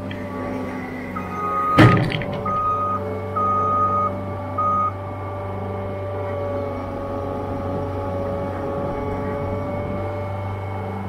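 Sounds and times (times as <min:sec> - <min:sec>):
skid loader engine whining: 0:00.0 - 0:11.0
backup alarm beeping: 0:01.0 - 0:05.0.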